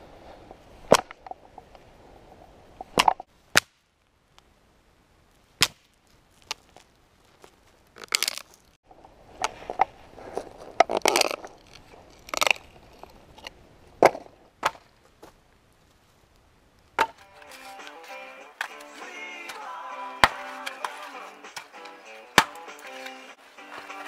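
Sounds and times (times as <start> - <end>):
firewood crackling and crunching: 2.8 - 24.0
dry branches snapping: 5.6 - 8.8, 10.8 - 12.7, 17.0 - 23.8.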